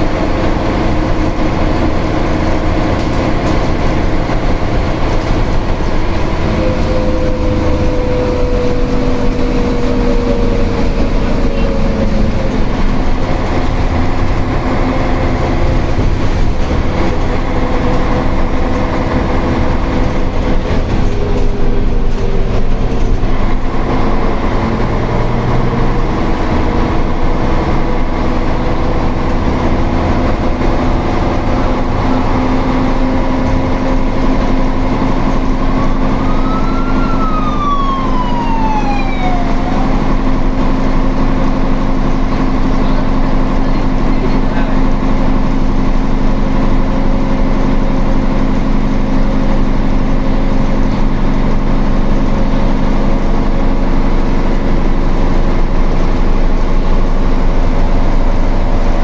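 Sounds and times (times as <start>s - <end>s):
bus diesel engine running: 0.0s - 59.0s
ambulance siren: 6.2s - 13.6s, 35.0s - 41.6s.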